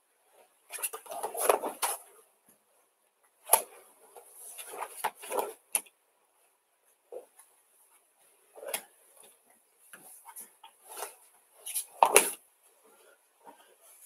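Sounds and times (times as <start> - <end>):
jacket rustling and scuffing on mat: 9.9 - 12.4.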